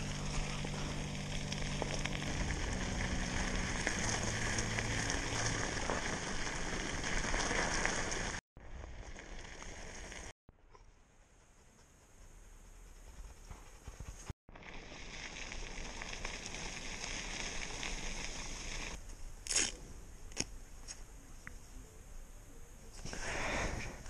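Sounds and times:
bike tyres rolling over gravel: 0:00.0 - 0:10.3, 0:14.5 - 0:19.0.

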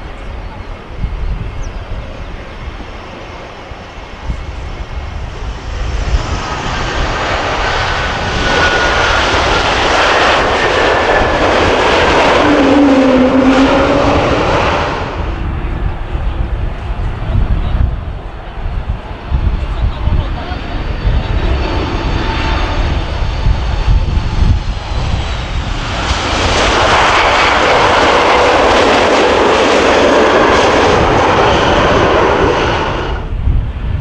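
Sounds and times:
distant jet engine rumble: 0:00.0 - 0:34.0
jet engines roaring and whining: 0:00.0 - 0:34.0.

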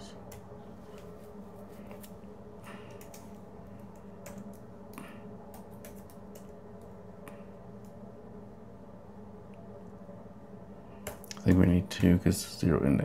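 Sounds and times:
steady low hum: 0:00.0 - 0:13.0
keyboard typing: 0:02.8 - 0:07.0.

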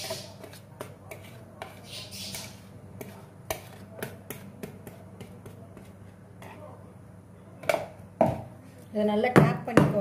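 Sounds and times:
spatula scraping batter from bowl: 0:00.0 - 0:06.7.

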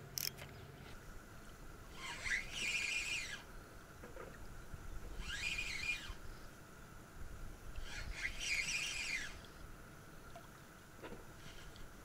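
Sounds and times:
fishing reel whirring: 0:01.9 - 0:03.5, 0:05.1 - 0:06.3, 0:07.8 - 0:09.5.

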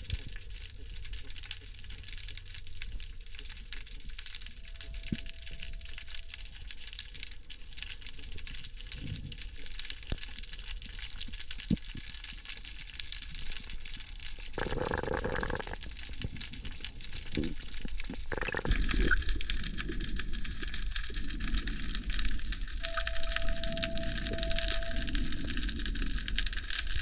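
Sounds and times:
small clicks and crackles: 0:00.0 - 0:27.0
low rumble: 0:19.0 - 0:27.0.

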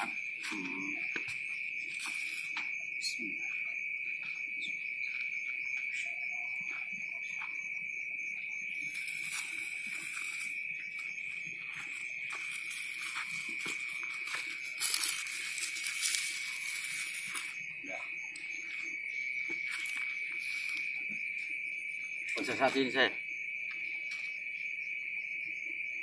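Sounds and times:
crickets chirping: 0:00.0 - 0:26.0
faint scuffs and scrapes: 0:09.0 - 0:17.6.

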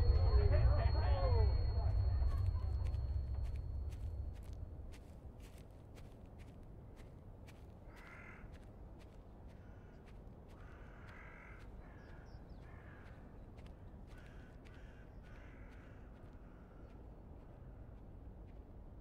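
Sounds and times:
low outdoor rumble: 0:00.0 - 0:07.6
crows cawing: 0:07.9 - 0:08.7, 0:09.6 - 0:13.4, 0:14.1 - 0:16.9.

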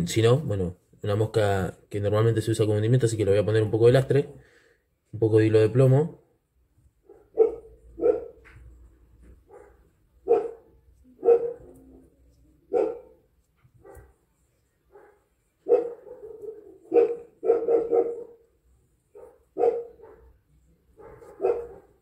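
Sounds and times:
dog barking: 0:07.0 - 0:08.6, 0:09.4 - 0:14.2, 0:14.8 - 0:18.5, 0:19.1 - 0:22.0.

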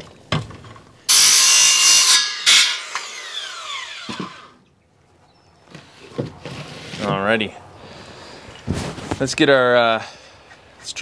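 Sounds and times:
circular saw cutting wood: 0:01.1 - 0:04.6.

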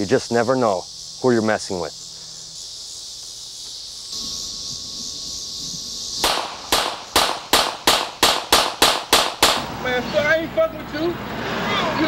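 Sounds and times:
insects chirring: 0:00.0 - 0:11.1
pistol shots: 0:06.2 - 0:09.7.

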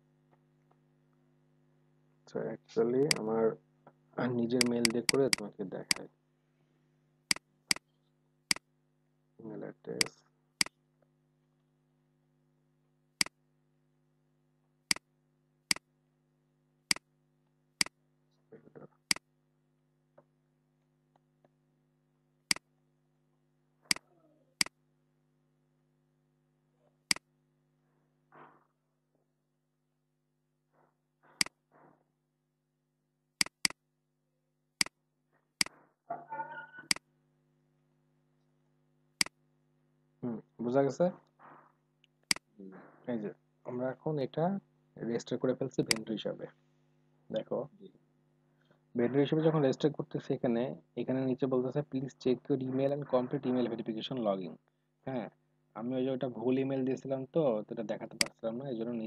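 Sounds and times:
faint electrical hum: 0:00.0 - 0:29.3, 0:34.8 - 0:59.0
computer mouse clicks: 0:04.6 - 0:06.0, 0:33.4 - 0:33.8.

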